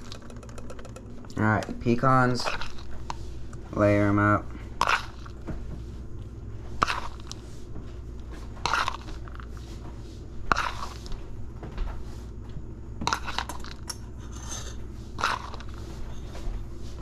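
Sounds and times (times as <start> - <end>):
low steady hum: 0.0 - 17.0
spoon scooping pecans: 2.0 - 3.2, 4.8 - 5.4, 6.8 - 7.4, 8.7 - 9.5, 10.5 - 11.1, 13.1 - 13.9, 15.2 - 15.8.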